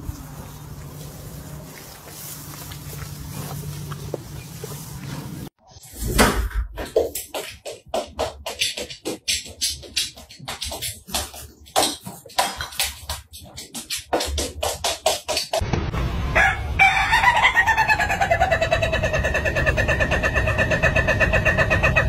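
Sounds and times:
rooster crowing: 16.3 - 19.1.

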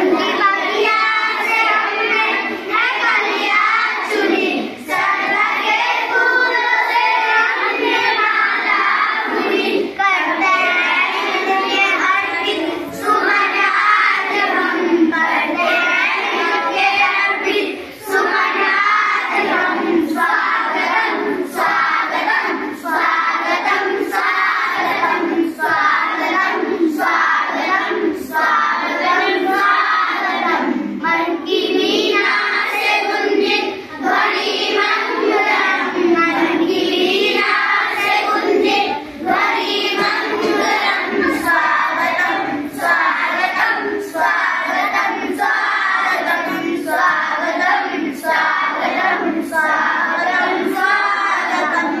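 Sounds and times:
children singing in unison: 0.0 - 52.0.

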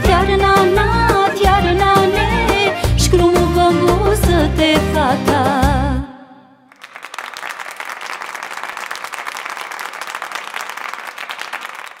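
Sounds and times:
music: 0.0 - 6.6
crowd applauding: 6.7 - 12.0.

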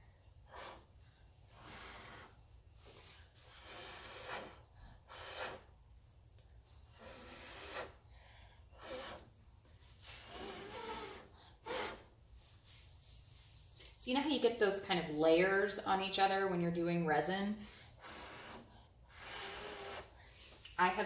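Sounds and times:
person blowing hissing puffs: 0.4 - 5.8, 6.6 - 12.8, 17.7 - 20.8
breath drawn in: 0.5 - 5.7.

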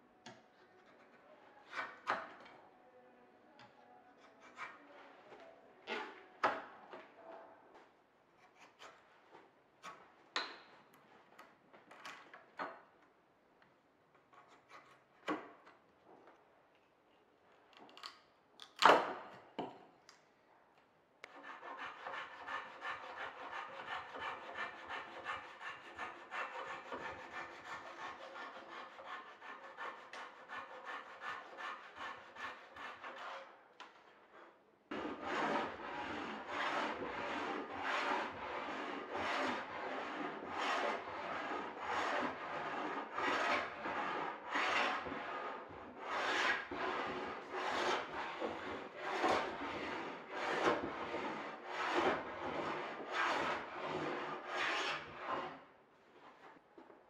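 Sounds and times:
hand tool scraping wood: 21.2 - 33.5, 34.9 - 55.6.

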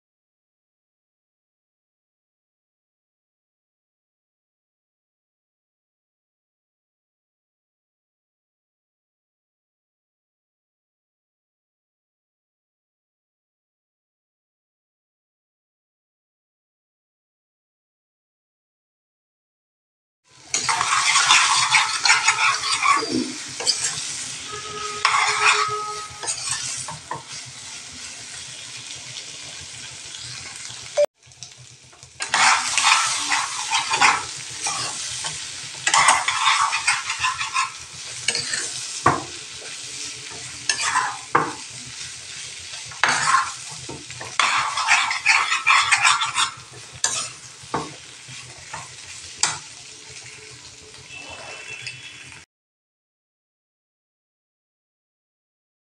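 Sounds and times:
prawns sizzling: 20.3 - 52.4
metal spoon scraping frying pan: 20.4 - 28.3, 32.2 - 50.4, 51.1 - 52.4.

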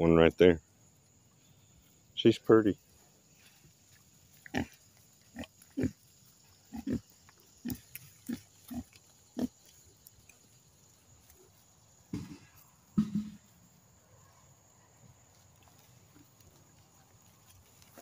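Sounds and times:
young pigs grunting: 4.3 - 9.8.

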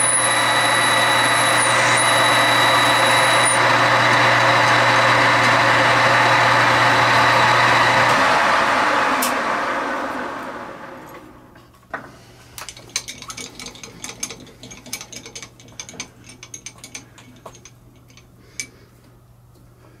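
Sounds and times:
lathe running: 0.0 - 11.4
light metallic clicks and rattles: 12.6 - 18.8.

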